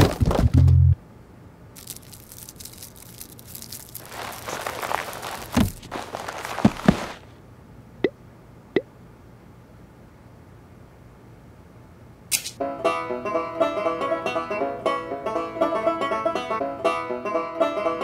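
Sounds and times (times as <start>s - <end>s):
rustling and scuffling: 1.8s - 7.4s
dull thumps: 4.0s - 7.3s.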